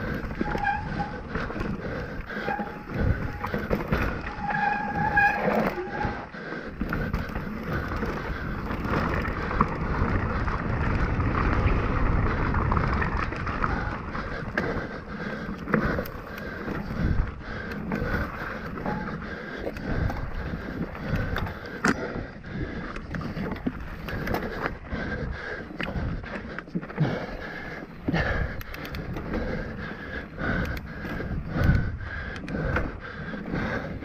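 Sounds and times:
bike rattling and knocking: 0:00.0 - 0:22.2, 0:22.9 - 0:34.0
bike tyres rolling over dirt: 0:00.0 - 0:34.0
high squeal: 0:04.2 - 0:06.2.

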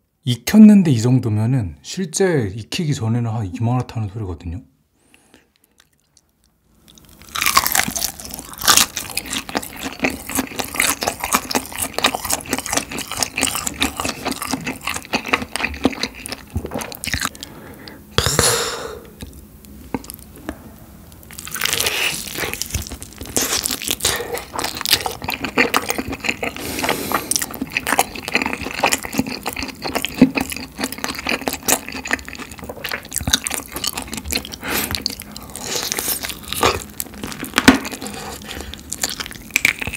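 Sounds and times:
crunchy bites and chewing: 0:05.6 - 0:18.0, 0:21.2 - 0:39.9.

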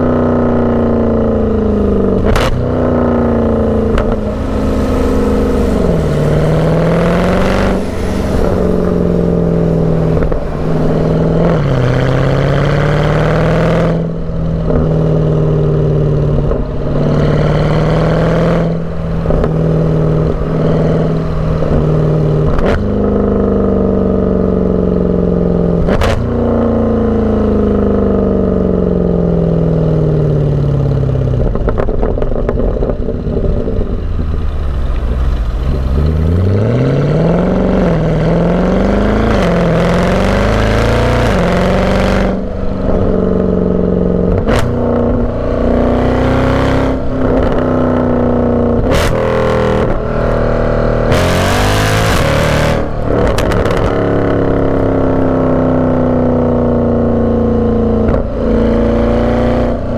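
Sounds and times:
car engine exhaust revving: 0:00.0 - 0:59.9
exhaust cracks: 0:01.4 - 0:12.6, 0:41.1 - 0:46.2, 0:46.9 - 0:58.5.

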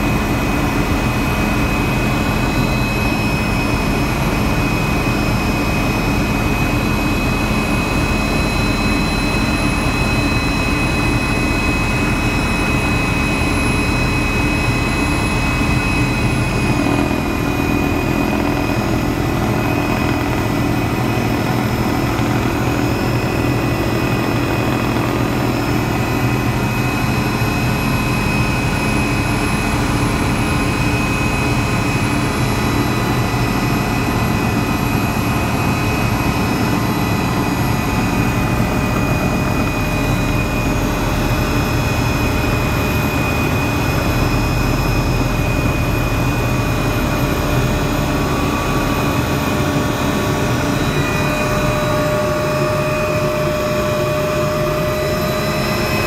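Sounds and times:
helicopter engine and rotor: 0:00.0 - 0:56.0
high whine: 0:00.0 - 0:56.0.

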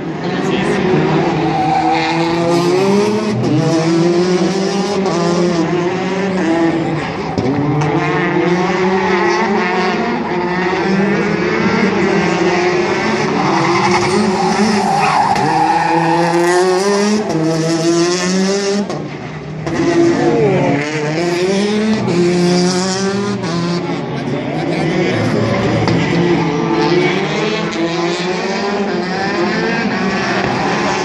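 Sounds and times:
rally car engine revving: 0:00.0 - 0:31.0
tyres skidding on tarmac: 0:00.8 - 0:04.6, 0:06.3 - 0:20.4.

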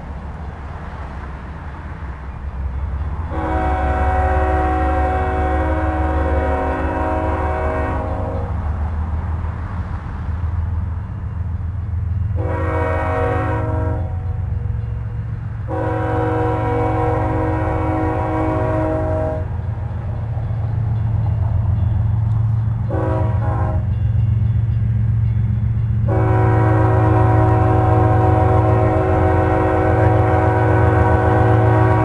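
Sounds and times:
locomotive air horn: 0:03.3 - 0:08.6, 0:12.4 - 0:14.4, 0:15.7 - 0:19.6, 0:22.9 - 0:24.0, 0:26.0 - 0:32.0.

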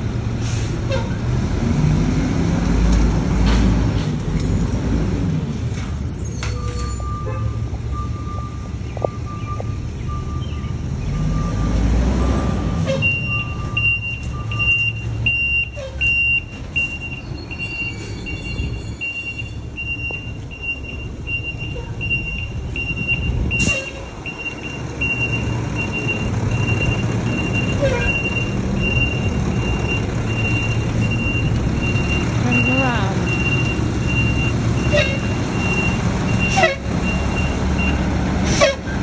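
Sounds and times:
truck engine rumble: 0:00.0 - 0:39.0
truck backup alarm beeping: 0:05.9 - 0:38.1.

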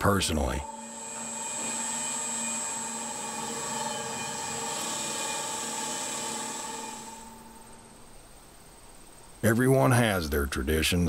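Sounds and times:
workshop machine humming: 0:00.0 - 0:08.2
thin high whine: 0:00.0 - 0:09.4.

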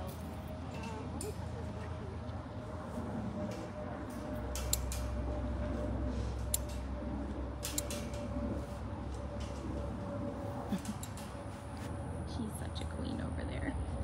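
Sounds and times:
steady low rumble: 0:00.0 - 0:14.0
metal cage door clicking and creaking: 0:07.6 - 0:08.3.

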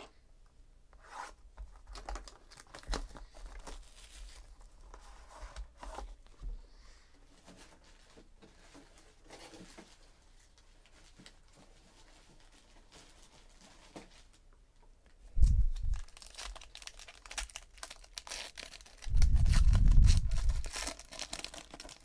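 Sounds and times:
wrapper crinkling and tearing: 0:01.8 - 0:04.8, 0:15.4 - 0:22.0.

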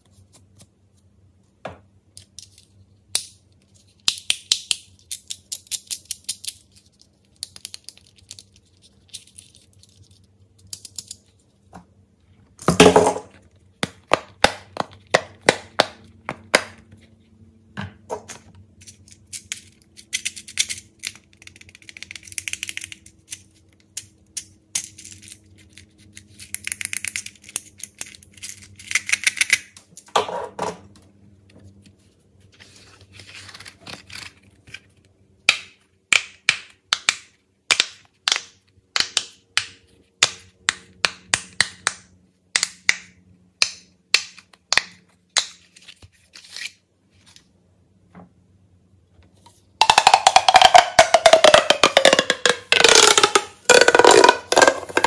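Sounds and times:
plastic toy clicks and rattles: 0:49.8 - 0:55.0.

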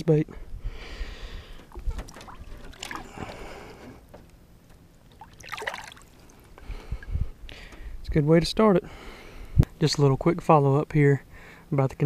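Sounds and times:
water splashing: 0:01.6 - 0:03.7, 0:05.1 - 0:06.5.

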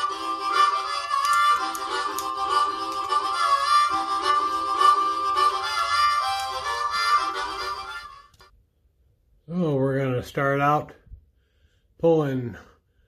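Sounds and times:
harmonica melody: 0:00.0 - 0:08.5.

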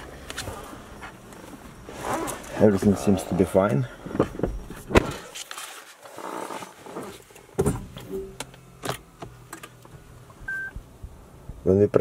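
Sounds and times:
faint steady hum: 0:00.0 - 0:12.0
short low beep: 0:10.5 - 0:10.8.

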